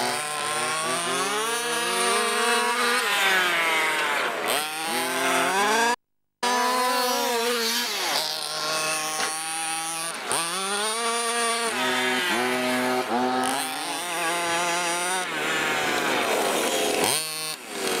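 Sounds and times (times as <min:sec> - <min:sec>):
two-stroke engine revving: 0:00.0 - 0:18.0.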